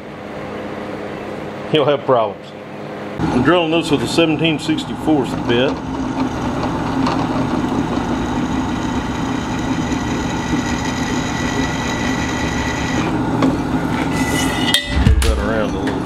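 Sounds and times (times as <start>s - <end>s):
drill press motor hum: 4.7s - 13.7s
drill bit whining through steel: 5.4s - 13.2s.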